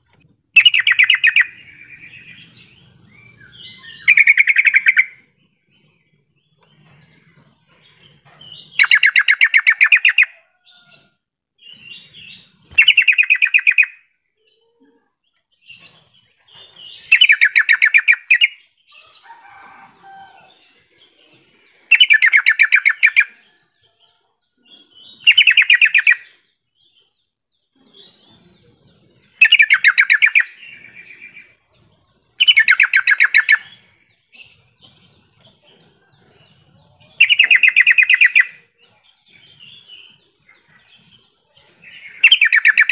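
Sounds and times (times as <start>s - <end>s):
bird singing rapid notes: 0.0s - 6.8s, 8.4s - 10.3s, 11.6s - 14.1s, 15.6s - 18.8s, 21.8s - 23.4s, 24.7s - 28.6s, 29.2s - 34.9s, 36.8s - 42.9s.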